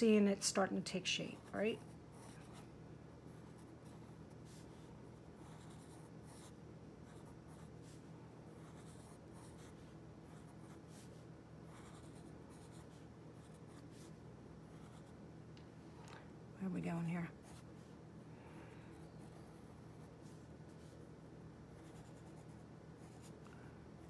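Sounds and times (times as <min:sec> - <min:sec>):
pencil scratching on paper: 0:05.3 - 0:14.1, 0:21.8 - 0:23.4.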